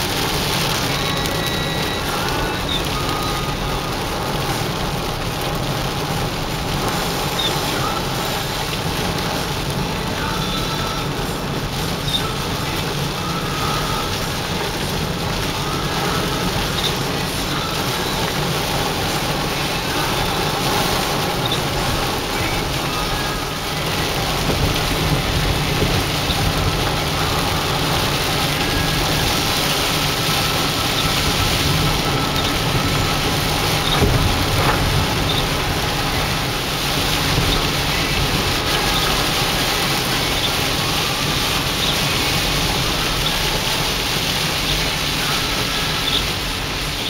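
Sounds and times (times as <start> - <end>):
rain on car windshield and roof: 0.0 - 47.0
tyres hissing on wet road: 0.0 - 47.0.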